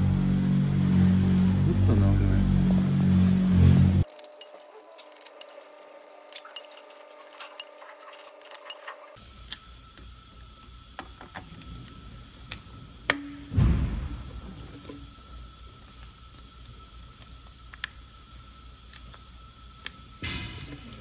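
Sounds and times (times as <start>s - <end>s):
faint steady hum: 0.0s - 21.0s
dull thump: 13.5s - 14.6s.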